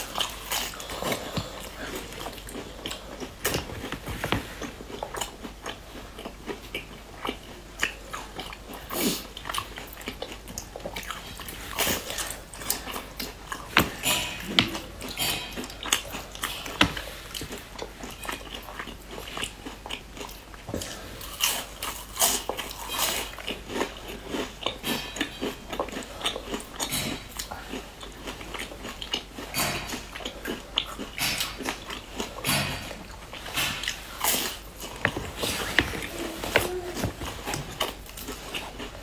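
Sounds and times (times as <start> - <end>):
chewing: 0.0 - 39.0
biscuit crunching: 33.1 - 39.0.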